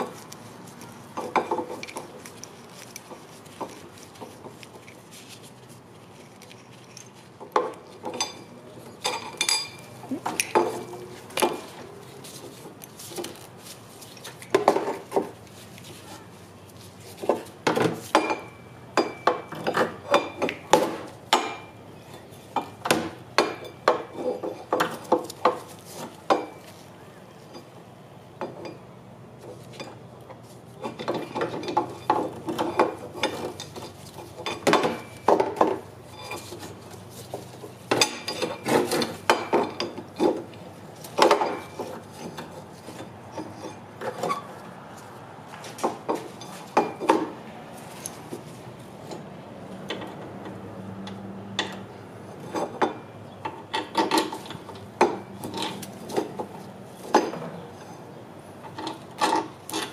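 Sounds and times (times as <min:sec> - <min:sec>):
tools on metal brake parts: 0:00.0 - 0:16.0, 0:29.5 - 0:48.4, 0:49.0 - 0:59.9.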